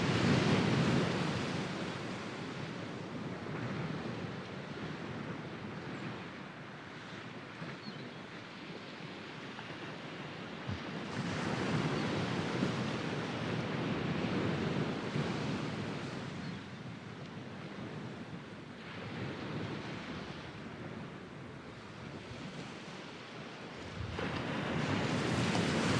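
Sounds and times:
sea waves breaking on sand: 0.0s - 7.7s, 8.6s - 25.9s.

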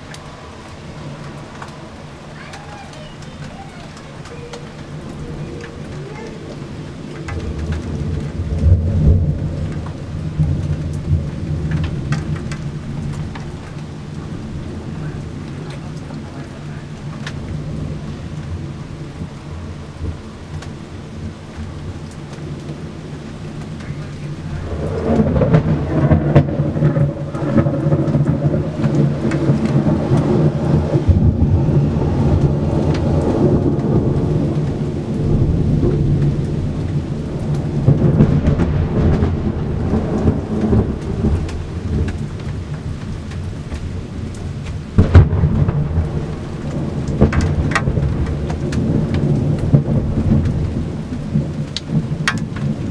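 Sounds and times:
steady rain falling: 0.0s - 52.9s
thunder rumbling: 0.0s - 52.9s
loud thunder clap: 2.5s - 13.6s, 23.7s - 43.9s, 45.0s - 52.9s.

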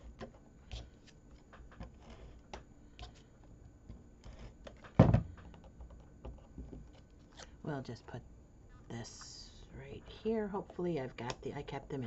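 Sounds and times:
thump on desk: 5.0s - 5.4s.

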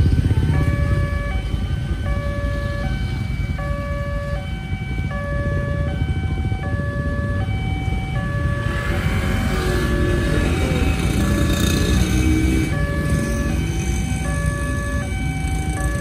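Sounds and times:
motorcycle engines idling: 0.0s - 9.0s
two-tone crossing warning siren: 0.0s - 16.0s.

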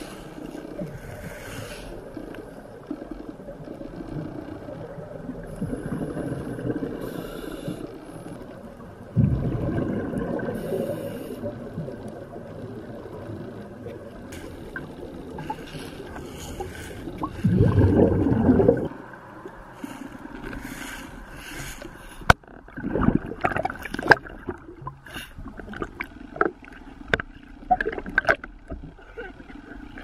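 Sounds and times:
gurgling exhaled bubbles: 9.0s - 13.4s, 14.7s - 19.1s, 22.5s - 26.7s.

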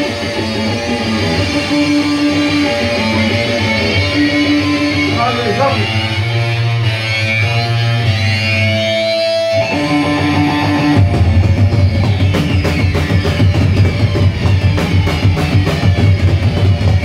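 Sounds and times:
electric guitar and bass chords: 0.0s - 17.0s
drums and cymbals crashing: 9.7s - 17.0s.

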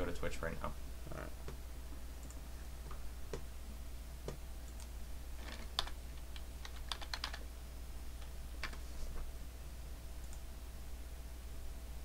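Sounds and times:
keyboard typing: 4.7s - 7.4s.

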